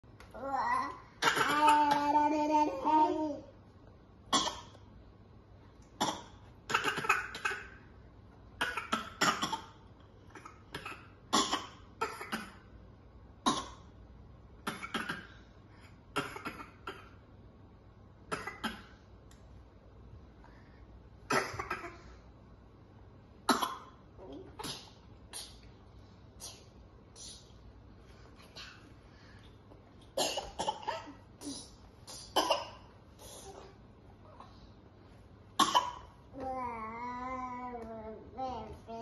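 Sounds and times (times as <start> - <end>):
toddlers pretend coughing: 0.4 - 3.3.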